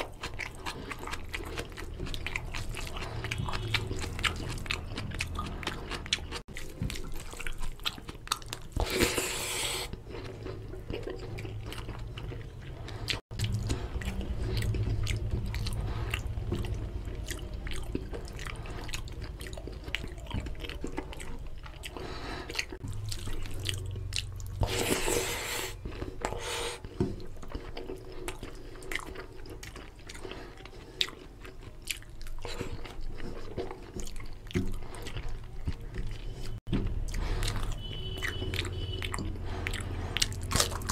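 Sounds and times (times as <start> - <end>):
man chewing food: 0.0 - 40.9
wet mouth clicks and smacks: 36.9 - 40.9.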